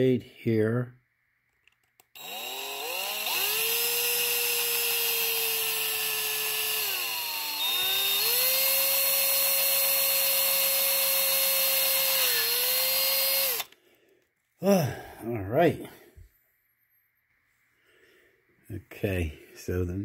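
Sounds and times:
electric drill drilling plastic: 2.2s - 13.8s.

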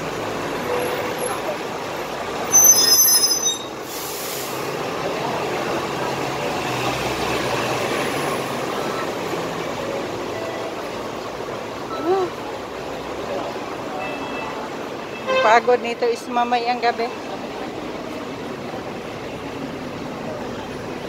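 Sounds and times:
city street traffic: 0.0s - 21.0s
vehicle brakes squealing: 2.4s - 4.7s.

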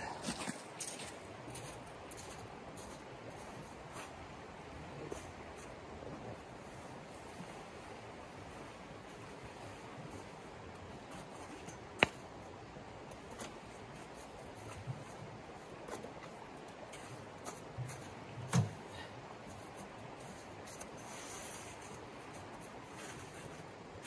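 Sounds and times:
shallow stream flowing: 0.0s - 24.0s.

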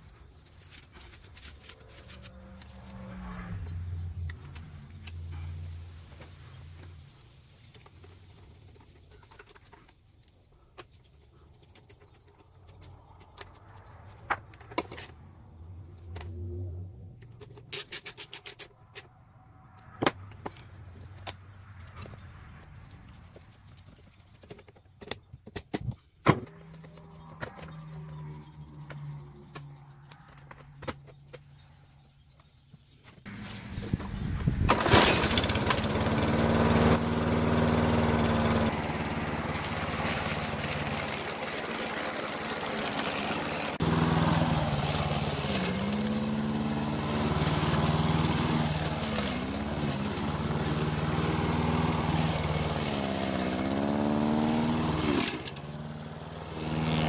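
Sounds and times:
parts clicking and knocking: 0.0s - 33.4s.

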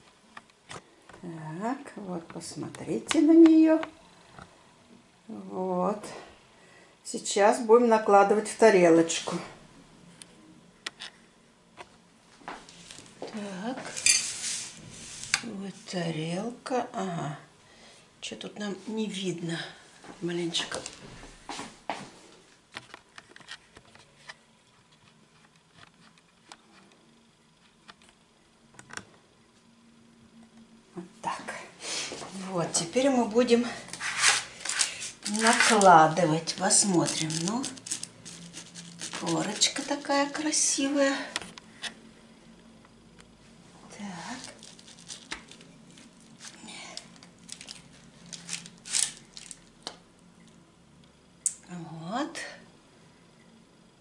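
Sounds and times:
spatula scraping baking dish: 13.9s - 15.4s, 34.0s - 40.1s.

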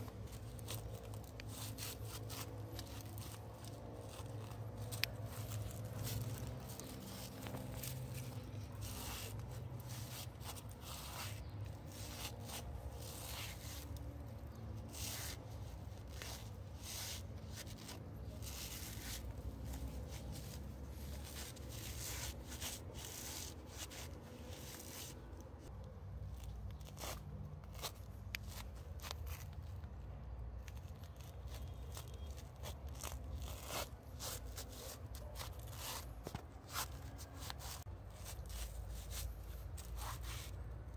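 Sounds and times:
footsteps crunching dry leaves: 0.1s - 25.3s.

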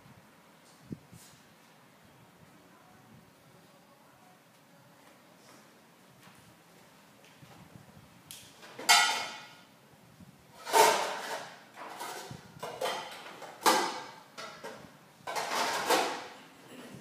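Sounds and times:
metal bowl and utensils clattering: 8.8s - 9.6s, 10.6s - 16.4s.

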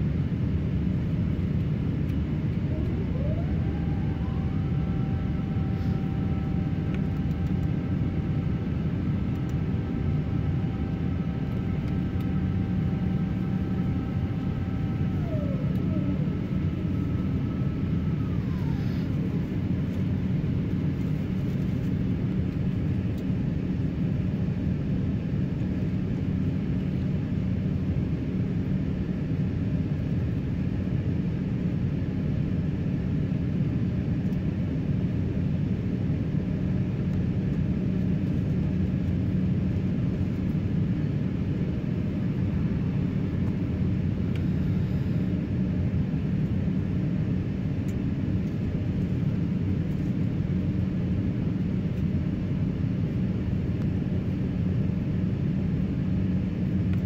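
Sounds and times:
jet engine rumble and airflow: 0.0s - 57.0s
two-pitch mechanical whine: 2.6s - 20.1s.

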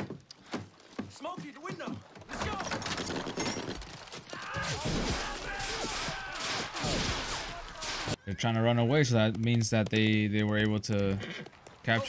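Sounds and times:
men shouting: 4.4s - 8.2s.

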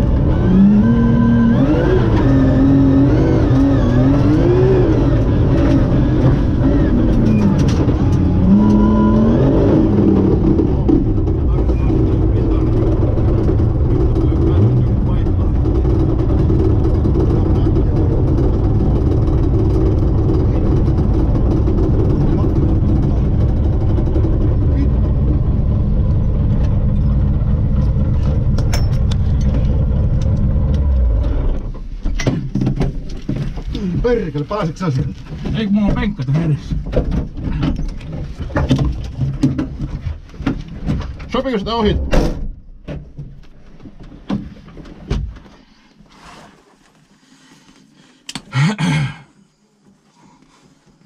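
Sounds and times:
loud car engine running: 0.0s - 32.0s
knocks and clatter in car cabin: 3.4s - 8.8s, 9.8s - 25.5s, 31.6s - 45.6s.

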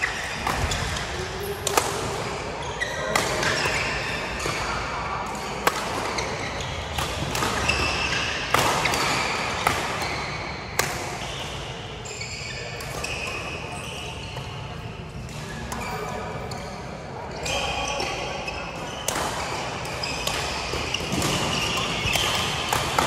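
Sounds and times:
shoes squeaking on court floor: 0.0s - 4.8s, 5.4s - 23.0s
racket striking shuttlecock: 19.1s - 23.0s.

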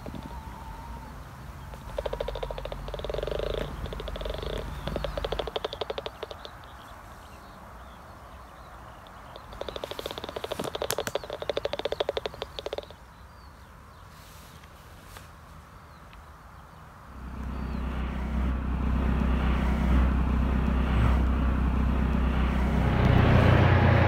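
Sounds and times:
helicopter rumble: 0.0s - 6.8s, 9.0s - 12.9s, 17.1s - 24.0s
bat detector clicks: 1.7s - 6.6s, 9.1s - 13.0s.

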